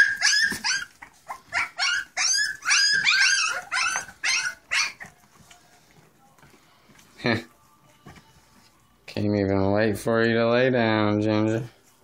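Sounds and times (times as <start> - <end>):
puppies squealing and yipping: 0.0 - 5.3.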